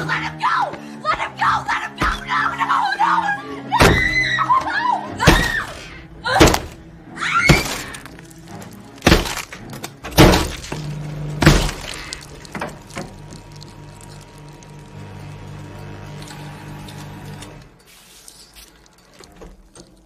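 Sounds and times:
low music drone: 0:02.6 - 0:17.6.

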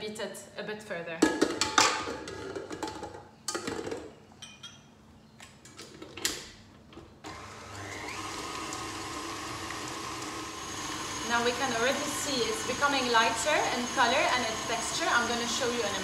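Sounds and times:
stand mixer motor running: 0:07.3 - 0:16.0.

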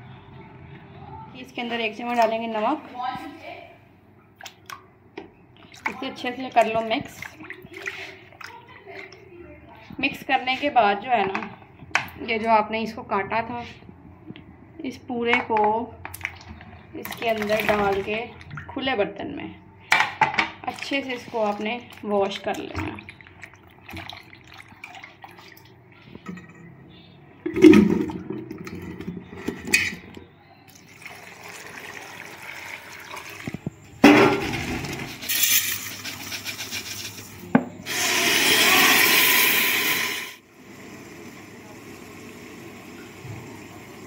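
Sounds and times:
water splashing in steel bowl: 0:05.6 - 0:09.2, 0:16.1 - 0:18.9, 0:20.6 - 0:25.9
tap water pouring into bowl: 0:30.7 - 0:33.7.

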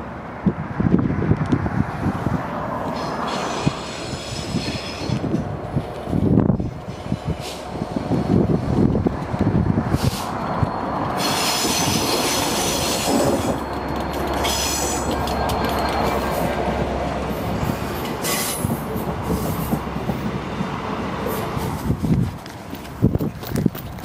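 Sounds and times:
diesel locomotive engine running: 0:00.0 - 0:24.0
train wheels rolling: 0:02.8 - 0:24.0
high-pitched wheel squeal: 0:03.0 - 0:05.4, 0:09.9 - 0:17.0, 0:18.0 - 0:19.7.

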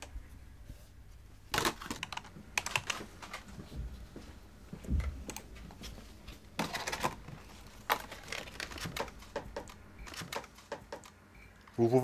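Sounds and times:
newspaper rustling: 0:05.8 - 0:09.4.

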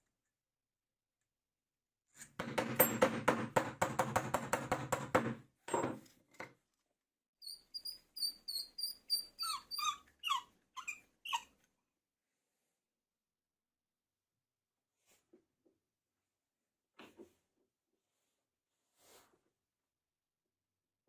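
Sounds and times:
short high squeaks: 0:07.4 - 0:11.5.

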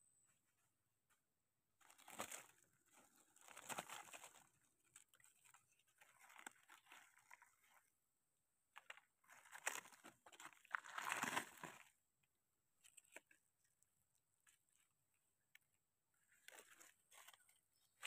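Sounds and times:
dry leaves crackling and rustling: 0:01.8 - 0:04.5.

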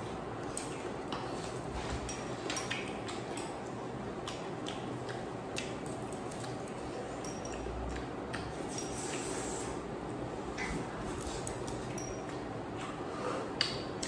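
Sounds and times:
steady background noise: 0:00.0 - 0:14.0.

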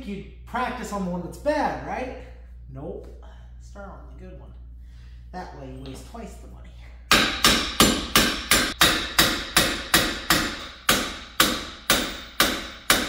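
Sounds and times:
hammer striking metal: 0:07.1 - 0:13.0.

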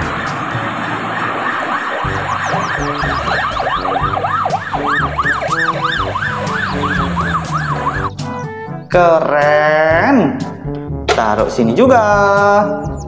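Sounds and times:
ambulance siren wailing: 0:00.0 - 0:08.3
background music: 0:00.0 - 0:13.0.

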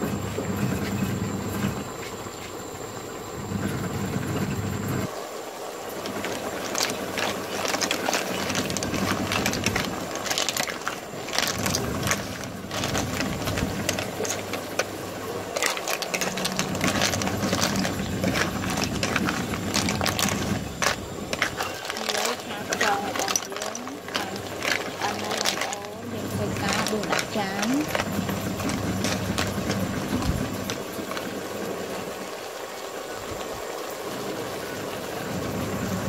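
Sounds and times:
low steady hum: 0:00.0 - 0:32.4
wooden spatula scraping: 0:06.0 - 0:31.4.

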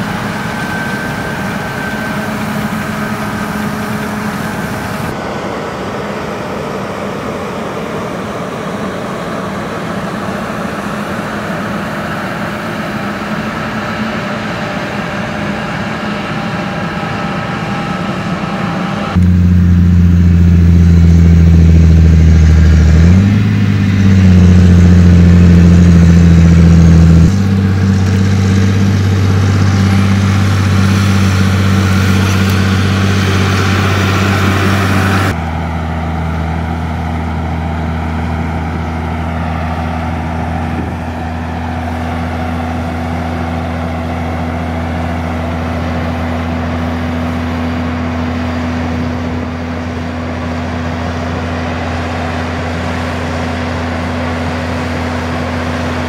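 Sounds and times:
auger unloading grain: 0:00.0 - 0:05.2, 0:19.2 - 0:56.0
tractor diesel engine running: 0:00.0 - 0:56.0.

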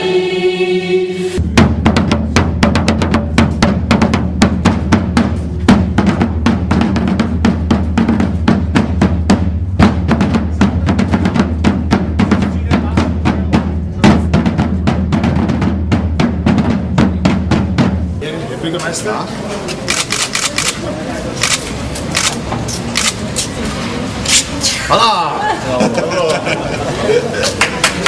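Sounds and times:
drum beaten with sticks: 0:01.4 - 0:18.3.

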